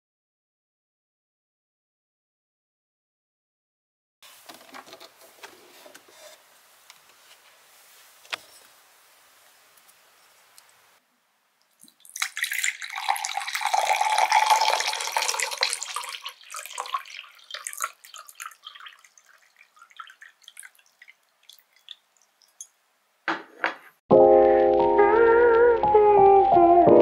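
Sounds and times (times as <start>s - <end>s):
small pops and drips: 11.6s - 22.8s
water pouring into a glass: 11.8s - 22.7s.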